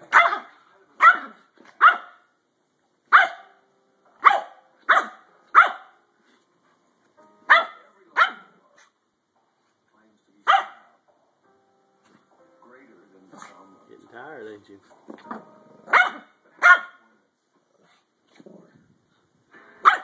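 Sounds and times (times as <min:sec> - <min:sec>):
small dog barking sharply: 0:00.1 - 0:02.2, 0:03.1 - 0:03.5, 0:04.2 - 0:05.9, 0:07.5 - 0:08.5, 0:10.5 - 0:10.9, 0:15.9 - 0:17.0.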